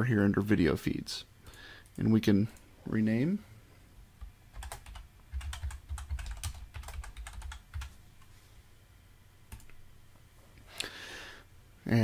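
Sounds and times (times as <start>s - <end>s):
typing on a keyboard: 4.6s - 7.9s.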